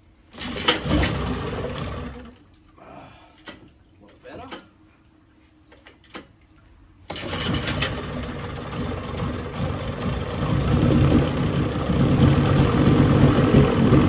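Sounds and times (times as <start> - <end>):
outboard engine pull-started and running: 0.3 - 2.5, 7.1 - 14.0.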